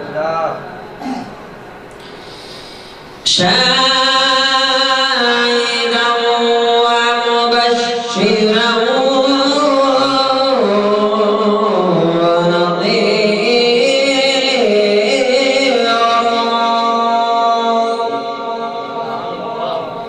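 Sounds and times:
man singing into a microphone: 3.2 - 20.0.

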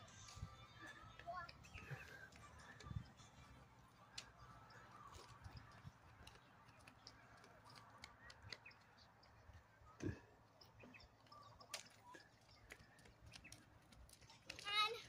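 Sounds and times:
small ticks: 11.4 - 15.0.

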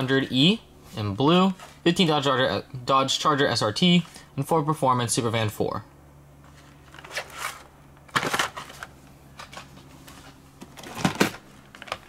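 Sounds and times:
plastic packaging clacks and crinkles: 6.9 - 12.0.

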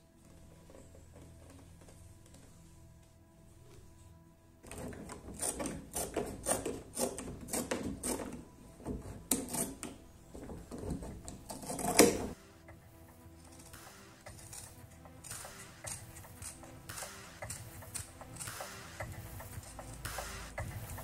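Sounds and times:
metal shears cutting leather: 4.6 - 12.4, 13.4 - 21.0.

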